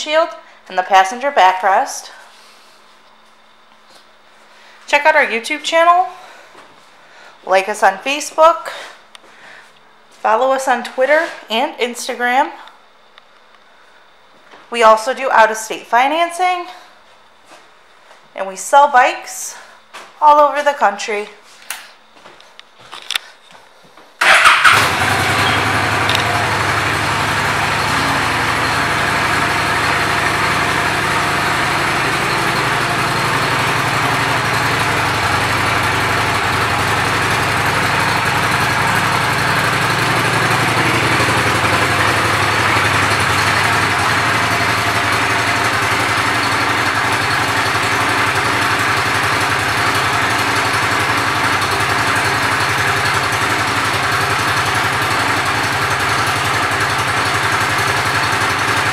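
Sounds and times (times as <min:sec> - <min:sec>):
motorcycle engine idling: 0:24.2 - 0:58.9.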